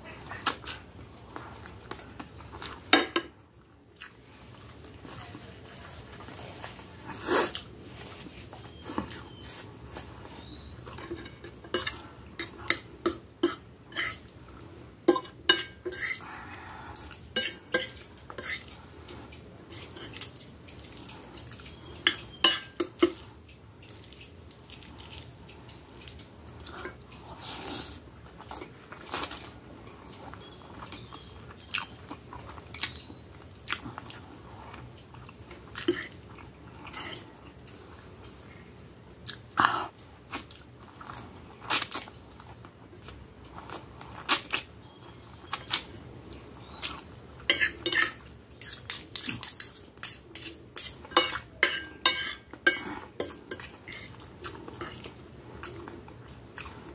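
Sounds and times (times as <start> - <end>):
fork and knife clinking on plate: 47.5 - 54.1.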